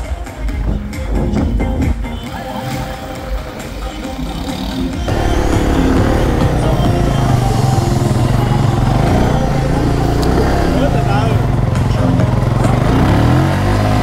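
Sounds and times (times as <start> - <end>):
background music: 0.0 - 14.0
motorcycle engine running: 4.7 - 14.0.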